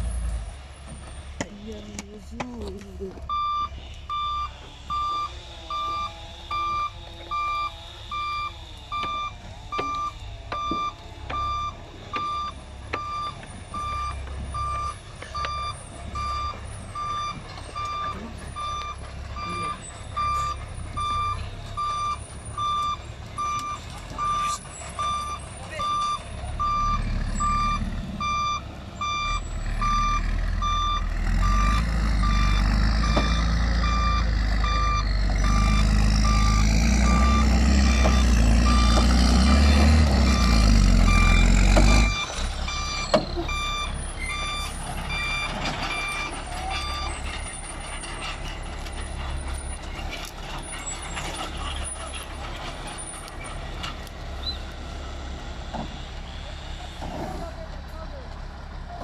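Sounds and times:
diesel truck engine under load: 0.0 - 59.0
reversing alarm beeping: 3.2 - 49.9.

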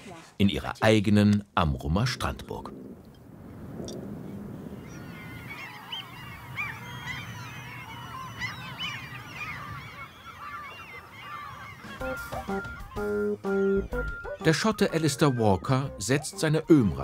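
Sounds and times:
flock of birds calling: 4.4 - 17.0.

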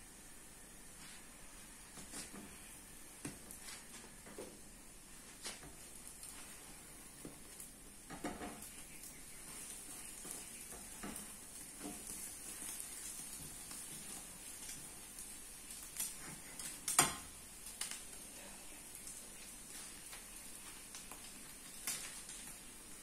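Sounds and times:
food sizzling in frying pans: 0.0 - 23.0
spatulas scraping and knocking pans: 9.4 - 14.8.

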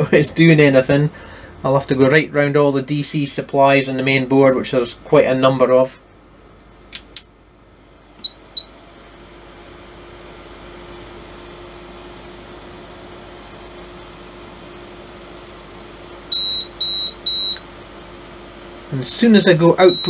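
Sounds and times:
steady hum: 0.0 - 20.0
high electronic beeps: 16.3 - 17.6, 19.8 - 20.0.

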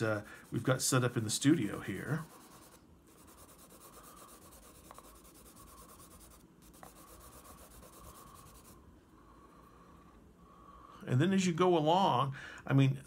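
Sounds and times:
crayon scratching on paper: 0.0 - 8.8.

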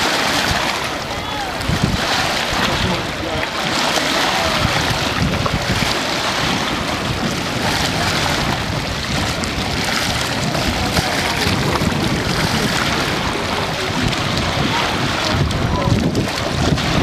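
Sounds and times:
choppy lake water rushing: 0.0 - 17.0
wind buffeting microphone: 0.0 - 17.0.

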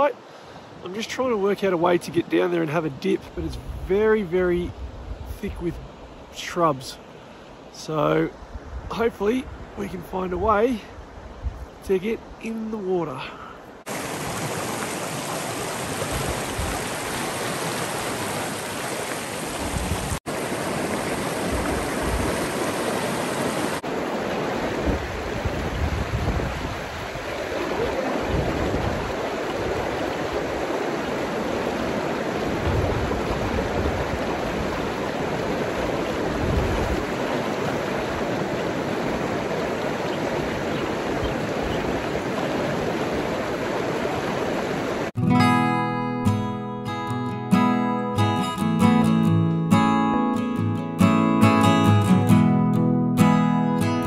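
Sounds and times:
river rapids rushing: 13.8 - 45.1.

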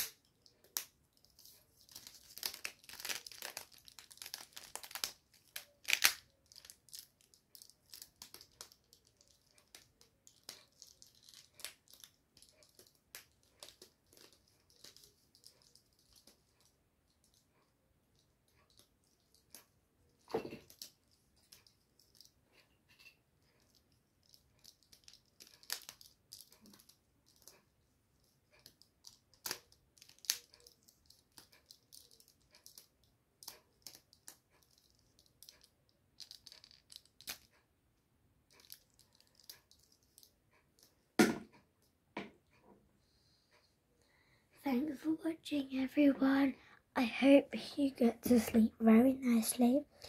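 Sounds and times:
plastic toy clicks and rattles: 0.0 - 22.6, 23.4 - 37.6, 38.5 - 40.9.

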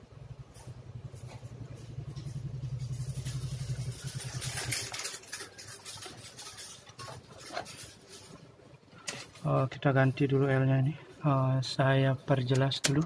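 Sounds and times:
small engine running: 0.5 - 6.7.

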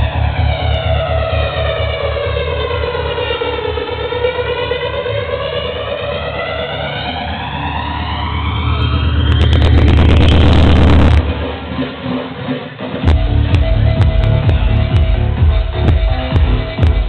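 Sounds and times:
house music: 0.0 - 17.0
siren-like synth sweep: 5.2 - 12.1
thumping bass beat: 8.4 - 12.1, 13.0 - 17.0.

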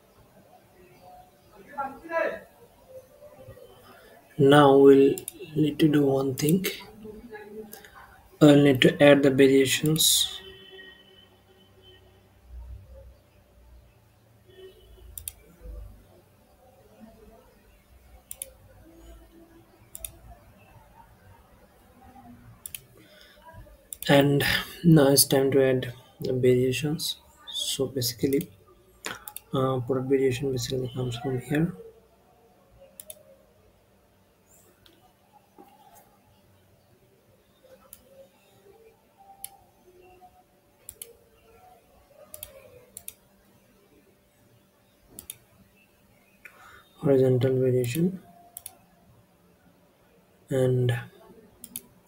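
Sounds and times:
faint low hum: 0.0 - 52.0
computer mouse button clicking: 32.9 - 33.2.

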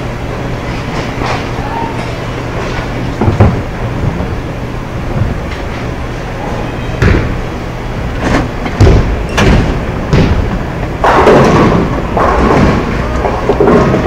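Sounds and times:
bowling balls rolling: 0.0 - 14.0
balls and pins clattering: 8.3 - 14.0.

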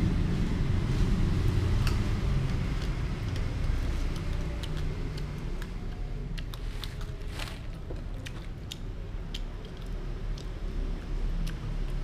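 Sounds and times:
foil bag crinkling: 6.8 - 7.9.

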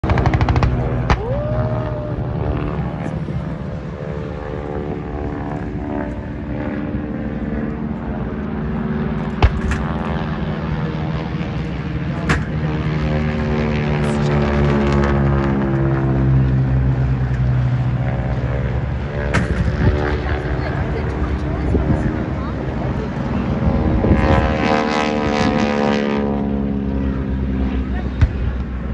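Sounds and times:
propeller planes droning: 0.0 - 28.9
pyrotechnic explosion bangs: 9.4 - 10.0.

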